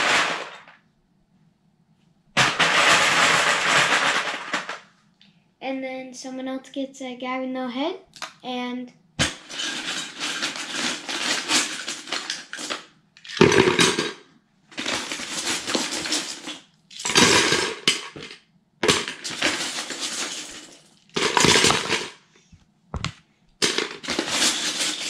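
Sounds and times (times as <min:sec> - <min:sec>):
plastic bricks poured into bucket: 0:00.0 - 0:00.8, 0:02.4 - 0:04.8, 0:09.2 - 0:22.2, 0:23.0 - 0:25.0.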